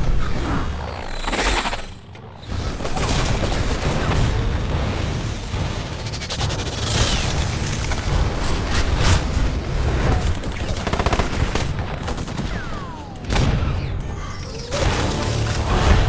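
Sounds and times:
deep rumble: 0.0 - 12.1.

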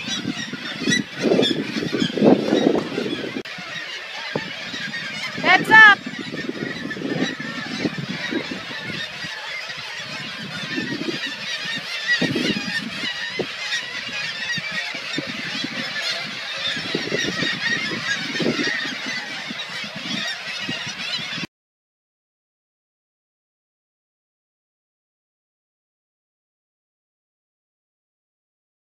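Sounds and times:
seabird colony calling: 0.0 - 21.5.

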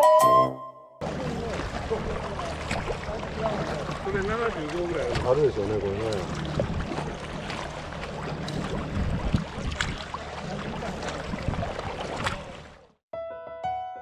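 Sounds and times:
small waves lapping: 1.0 - 13.0
wind rumbling on microphone: 6.1 - 12.8.

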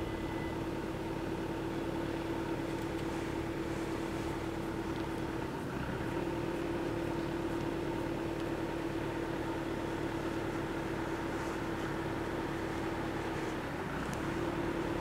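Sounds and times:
level crossing warning tone: 0.0 - 1.3.

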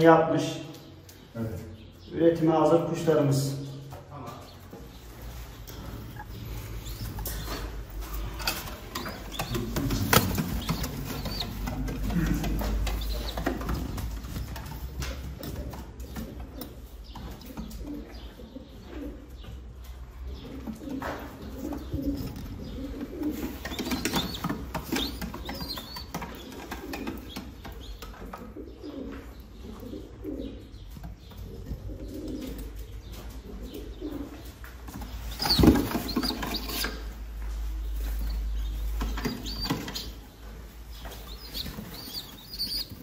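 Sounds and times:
pigeons cooing: 3.6 - 43.0
flurry of wings: 8.5 - 14.9.

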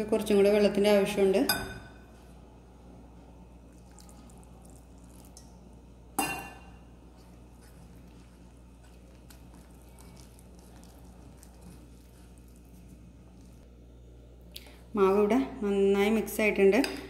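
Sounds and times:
whisk stirring batter: 7.0 - 13.6.

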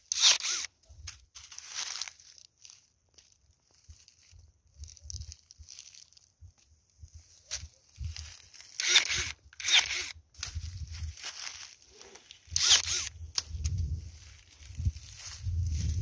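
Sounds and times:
pruning shears cutting branches: 0.0 - 0.7, 8.6 - 10.6, 12.2 - 14.0.

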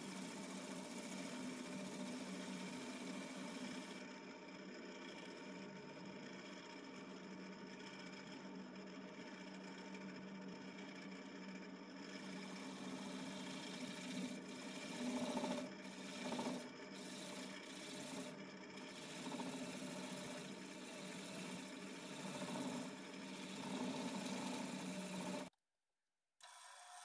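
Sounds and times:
wood lathe running: 0.0 - 4.1, 11.9 - 25.5
tool scraping spinning wood: 0.0 - 6.1, 8.2 - 25.6.

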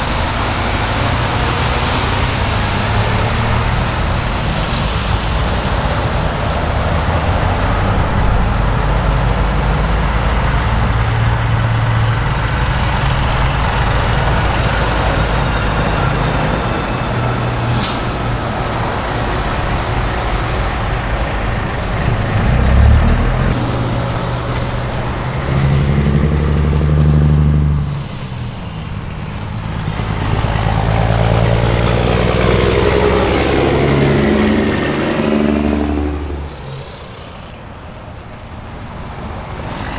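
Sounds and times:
diesel truck engines passing: 0.0 - 39.9
road noise: 0.0 - 39.9
high hiss: 23.6 - 39.9.

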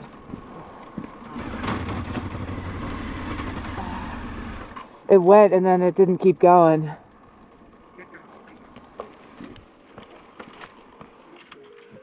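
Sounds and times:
motorcycle engine running: 1.0 - 4.8.

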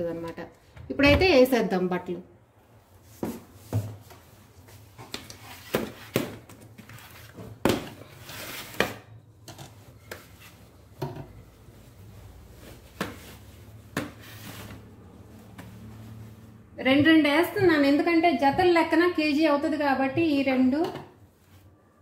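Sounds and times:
cloth rustling: 9.7 - 16.6.

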